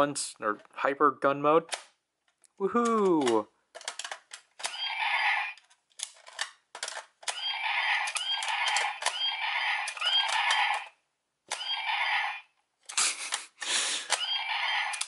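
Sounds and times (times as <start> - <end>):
electronic toy laser firing sounds: 4.6 - 5.6, 7.3 - 10.9, 11.5 - 12.5, 14.1 - 15.0.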